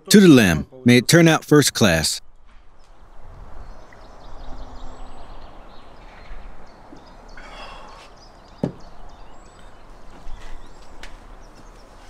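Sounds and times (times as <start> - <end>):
faint bird calls: 3.8 - 12.0.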